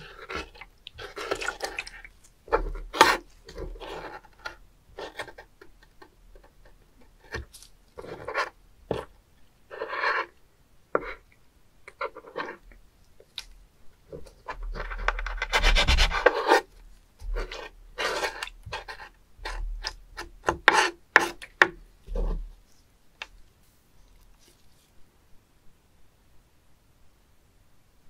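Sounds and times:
knife scraping cutting board: 0.0s - 5.4s, 9.7s - 10.4s, 12.0s - 12.6s, 14.4s - 21.5s.

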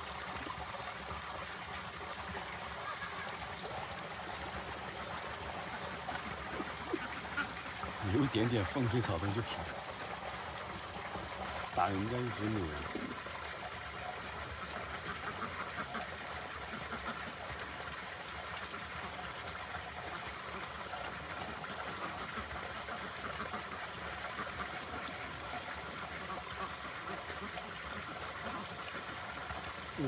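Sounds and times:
ducks quacking: 5.7s - 9.7s, 14.6s - 17.4s, 21.7s - 25.4s.

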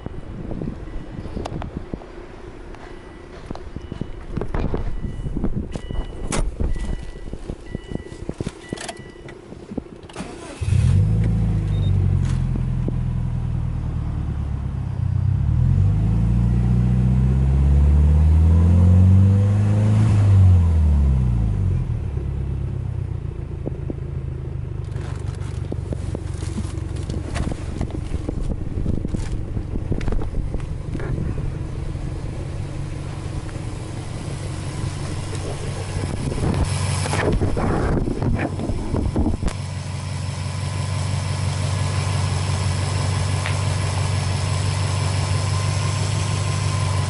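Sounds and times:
car engine starting and idling: 0.0s - 47.0s
electronic dashboard chimes: 4.9s - 9.4s
engine revving: 10.2s - 12.6s, 15.3s - 22.0s.

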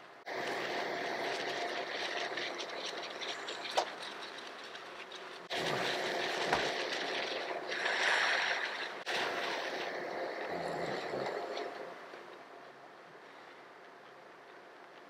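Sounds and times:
running water splashing: 0.3s - 12.0s.

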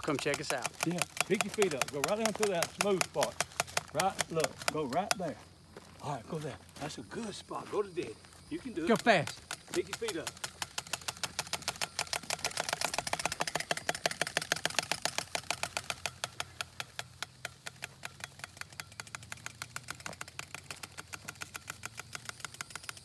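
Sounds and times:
cards clattering against bike spokes: 0.0s - 23.0s.

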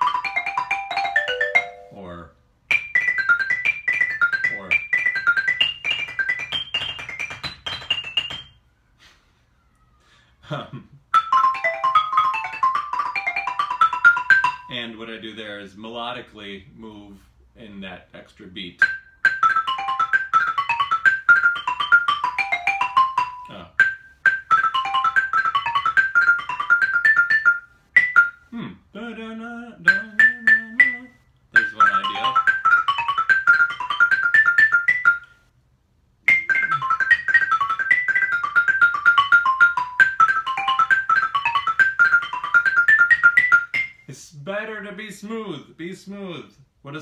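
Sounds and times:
xylophone fast runs: 0.0s - 2.0s, 2.7s - 8.6s, 11.2s - 14.8s, 18.8s - 28.4s, 29.9s - 35.3s, 36.3s - 44.0s.

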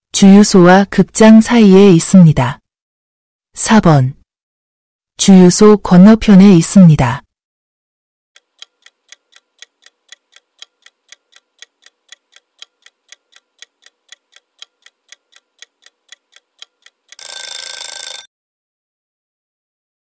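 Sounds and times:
clock ticking: 8.4s - 18.2s.

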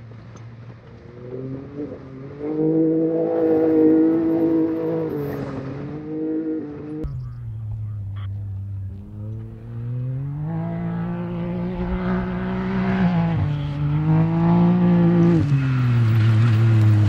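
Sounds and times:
off-road vehicle engine revving: 1.0s - 17.0s.

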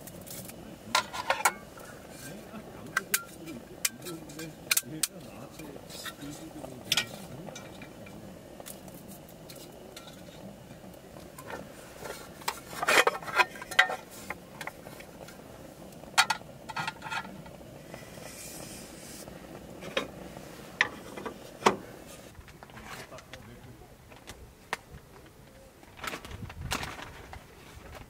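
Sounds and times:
metal mess tin clinking: 0.3s - 2.4s, 12.4s - 14.1s.

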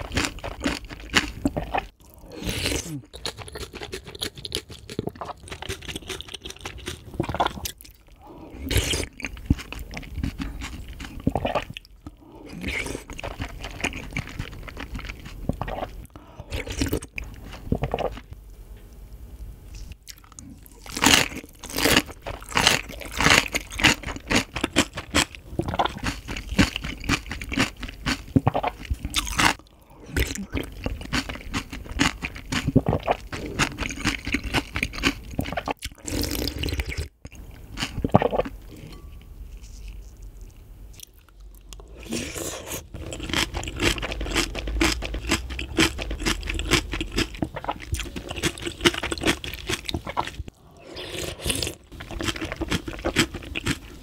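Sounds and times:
soft chewing of rice: 19.7s - 54.0s
crisp wet crunchy chewing: 39.6s - 50.5s, 51.4s - 54.0s.

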